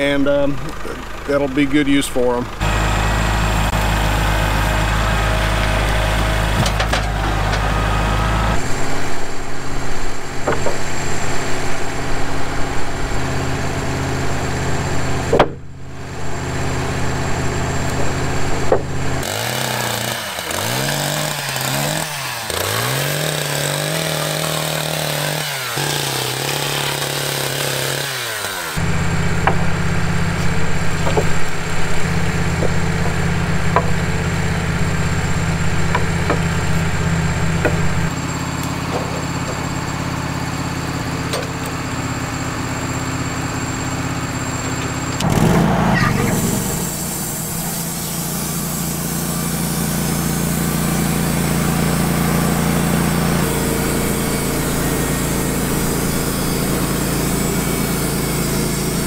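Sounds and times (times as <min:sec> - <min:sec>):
engine idling: 0:00.0 - 0:59.0
chainsaw revving: 0:02.5 - 0:09.1, 0:19.2 - 0:59.0.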